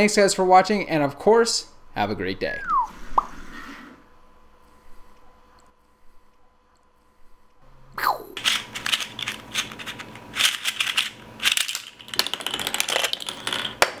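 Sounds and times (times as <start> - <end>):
speed cube clicking and clattering: 8.4 - 14.0.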